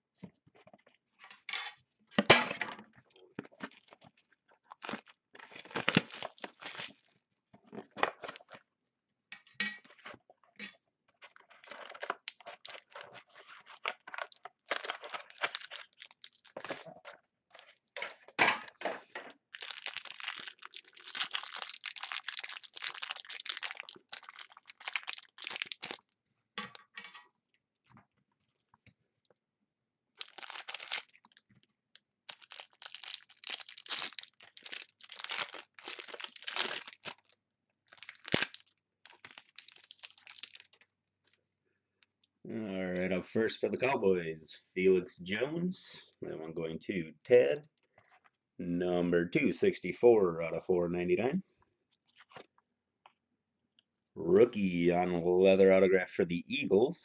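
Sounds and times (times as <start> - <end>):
plastic wrapping crinkling and tearing: 3.5 - 7.1, 11.2 - 18.3, 19.3 - 26.2, 30.2 - 41.4.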